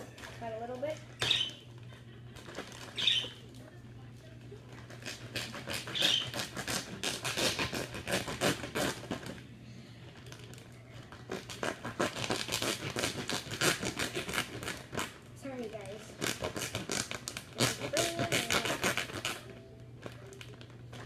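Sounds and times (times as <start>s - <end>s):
low steady hum: 0.0s - 21.0s
plastic bag crinkling: 16.2s - 21.0s.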